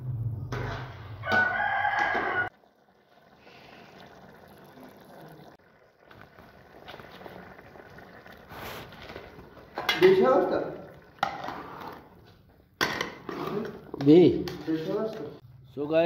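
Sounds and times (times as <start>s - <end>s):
low hum: 0.0s - 1.2s
metal ladle scraping a pot: 11.2s - 12.2s, 12.8s - 15.4s.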